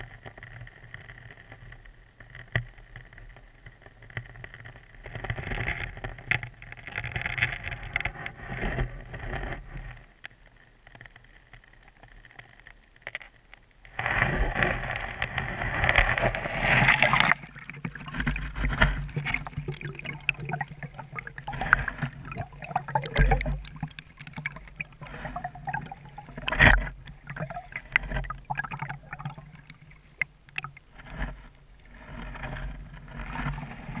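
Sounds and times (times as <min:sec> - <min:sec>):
muffled underwater stream rushing: 0:13.9 - 0:34.0.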